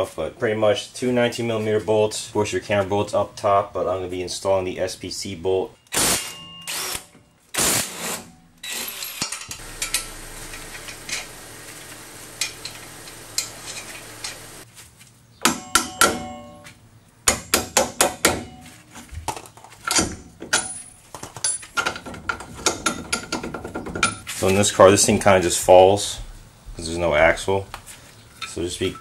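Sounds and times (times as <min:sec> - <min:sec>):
impact wrench running: 0:07.6 - 0:14.6
metal clinks and knocks: 0:08.6 - 0:11.4, 0:12.4 - 0:14.4, 0:18.2 - 0:24.3, 0:28.2 - 0:29.0.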